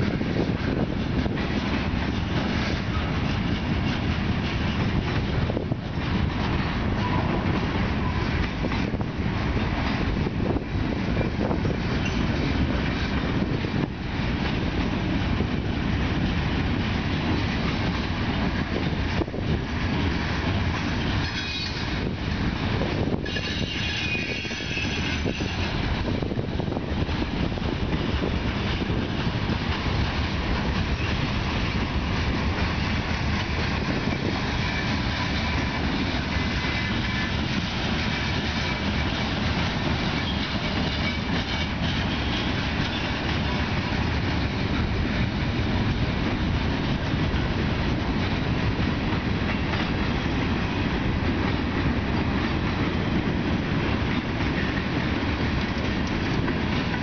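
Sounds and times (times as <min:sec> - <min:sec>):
freight train rumbling past: 0:00.0 - 0:57.0
high-pitched wheel squeal: 0:21.2 - 0:22.0, 0:23.2 - 0:25.8.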